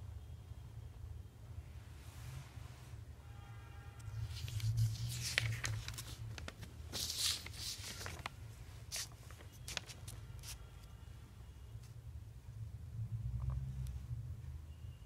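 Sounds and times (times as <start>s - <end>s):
paper pages rustling: 4.1s - 10.7s.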